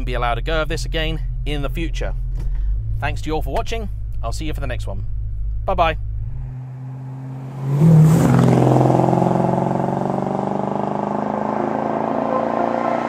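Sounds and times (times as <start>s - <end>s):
car engine revving: 0.0s - 13.0s.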